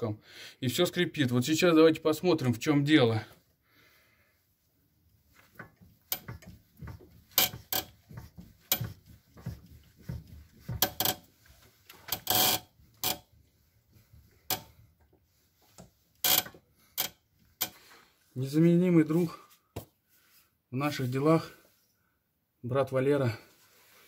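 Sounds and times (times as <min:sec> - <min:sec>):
car suspension creaking and squeaking: 0:05.4 - 0:13.3, 0:16.2 - 0:17.8.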